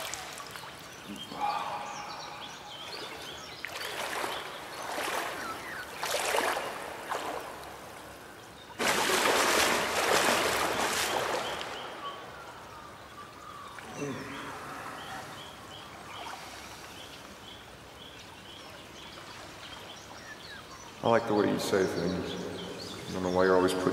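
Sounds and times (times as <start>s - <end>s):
water splashing in a pool: 0.0s - 1.4s, 2.7s - 12.6s.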